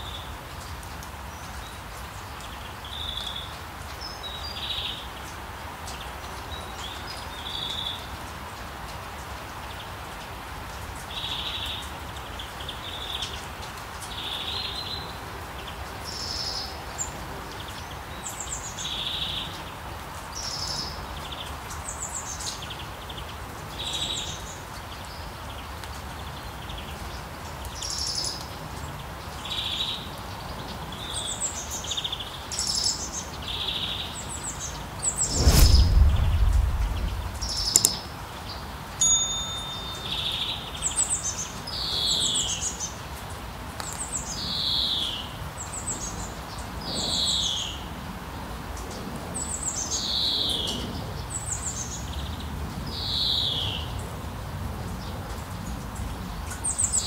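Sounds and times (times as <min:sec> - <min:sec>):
low thump with rumble: 0:35.2 - 0:37.9.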